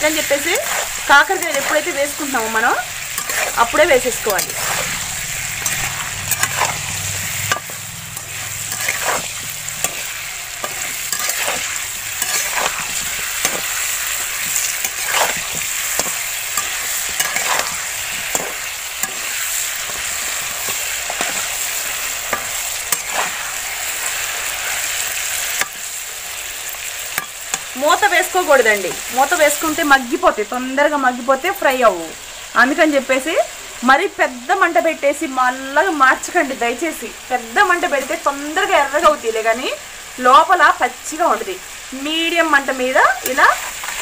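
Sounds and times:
metal spatula scraping pan: 0.0s - 23.6s
vegetables sizzling in hot oil: 0.0s - 44.0s.

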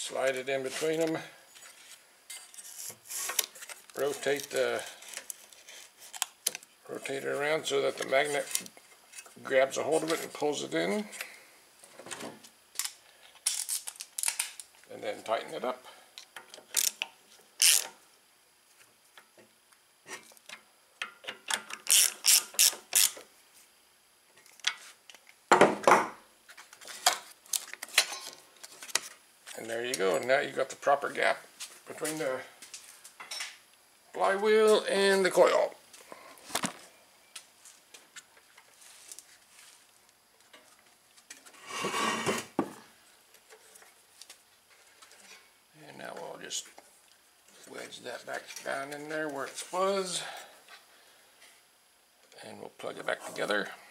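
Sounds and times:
ratchet wrench clicking: 17.6s - 17.9s, 21.8s - 23.2s.

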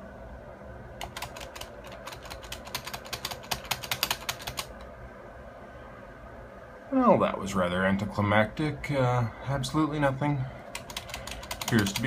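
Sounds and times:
typing on computer keyboard: 1.0s - 4.8s, 10.7s - 12.0s.

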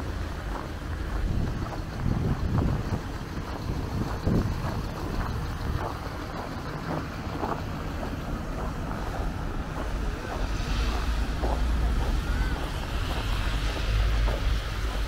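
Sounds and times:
footsteps walking: 0.0s - 15.0s
road traffic rumble: 0.0s - 15.0s
vehicle passing: 0.0s - 15.0s
wind buffeting microphone: 0.0s - 15.0s.

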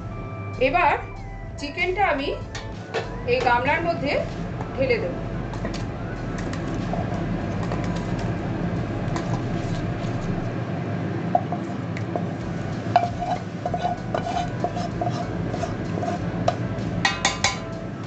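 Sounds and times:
curry scraped with spatula: 13.0s - 16.3s
metal utensil clinking on pan: 17.1s - 17.7s.

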